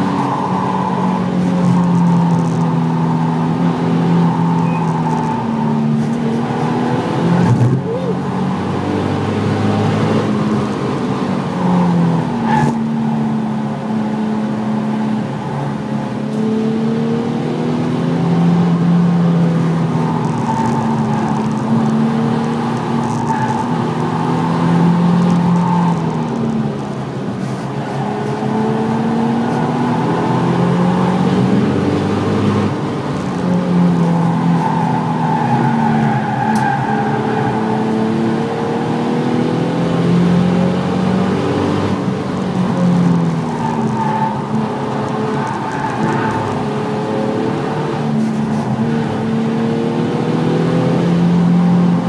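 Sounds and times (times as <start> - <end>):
car engine accelerating: 0.0 - 52.0
road and tyre noise: 0.0 - 52.0.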